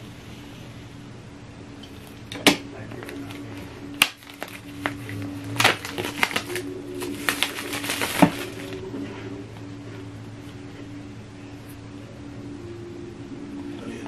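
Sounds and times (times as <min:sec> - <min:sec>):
steady low hum: 0:00.0 - 0:14.0
plastic wrap crinkling: 0:02.9 - 0:08.9.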